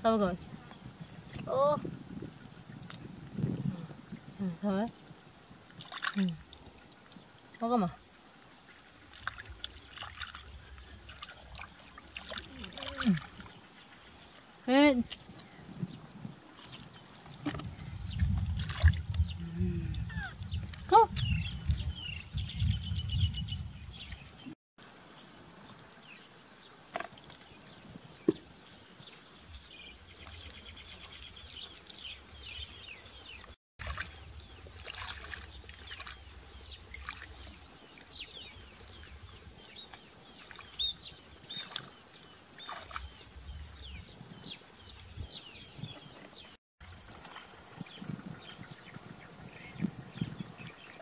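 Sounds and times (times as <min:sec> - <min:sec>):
water splashing into puddle: 0:05.8 - 0:06.8, 0:09.0 - 0:13.5, 0:16.6 - 0:19.2, 0:33.8 - 0:37.6, 0:42.6 - 0:43.2.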